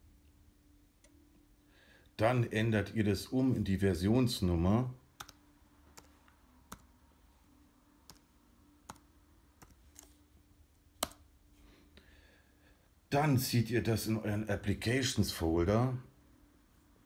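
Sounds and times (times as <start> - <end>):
faint low hum: 0.0 - 17.0
keyboard and mouse clicks: 5.2 - 6.9, 8.0 - 10.2, 10.9 - 11.3.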